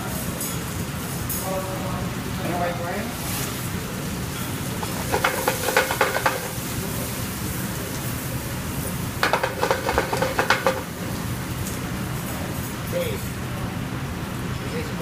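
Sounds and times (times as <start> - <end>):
food sizzling in pan: 0.0 - 13.4
pan rattling on stove: 4.8 - 6.7, 9.2 - 11.0.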